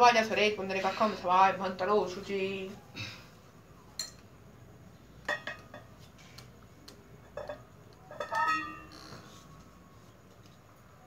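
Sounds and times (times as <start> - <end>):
metal utensils clinking on plate: 5.3 - 5.9, 7.3 - 8.9.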